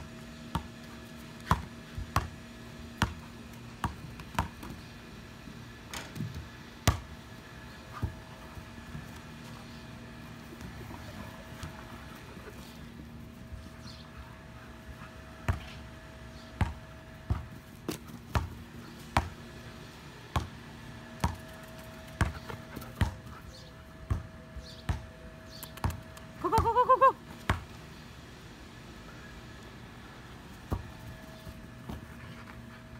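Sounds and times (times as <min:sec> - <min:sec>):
basketball bouncing on concrete: 0:00.5 - 0:02.4, 0:03.0 - 0:03.2, 0:03.8 - 0:04.8, 0:05.9 - 0:07.2, 0:15.4 - 0:15.8, 0:16.6 - 0:19.4, 0:20.3 - 0:20.6, 0:21.2 - 0:23.3, 0:24.1 - 0:25.1, 0:25.8 - 0:26.7, 0:27.4 - 0:27.7.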